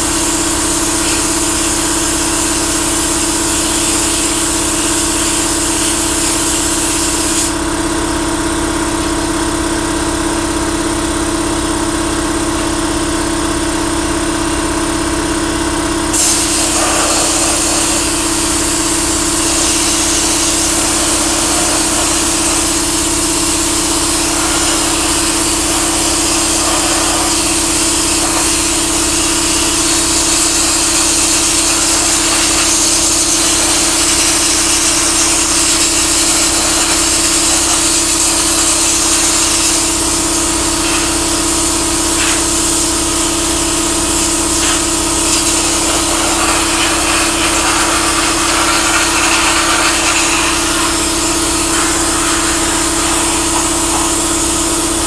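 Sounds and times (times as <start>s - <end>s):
sandblaster hiss of air and sand: 0.0s - 7.6s, 16.1s - 55.0s
steady hum: 15.8s - 55.0s.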